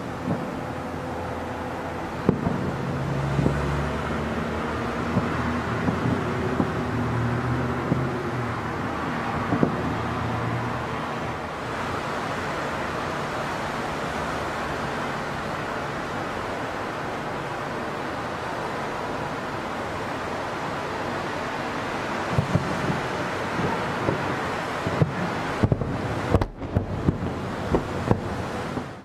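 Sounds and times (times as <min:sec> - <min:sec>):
distant fireworks bangs: 0:00.0 - 0:10.0, 0:22.2 - 0:29.0
city background hum: 0:00.0 - 0:29.0.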